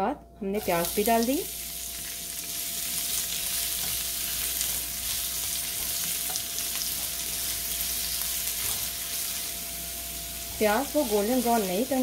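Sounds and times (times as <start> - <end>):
onions sizzling in hot oil: 0.6 - 12.0
spatula stirring in pan: 2.0 - 11.4.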